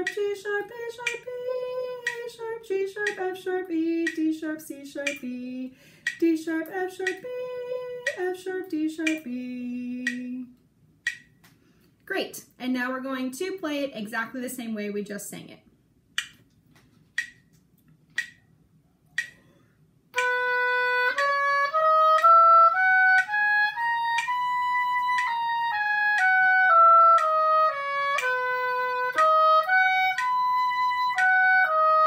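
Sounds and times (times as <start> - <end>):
metronome clicking: 0.0 - 5.4, 6.0 - 11.5, 16.2 - 16.5, 17.2 - 18.5, 19.2 - 19.5, 20.2 - 32.0
oboe playing a scale: 20.2 - 32.0.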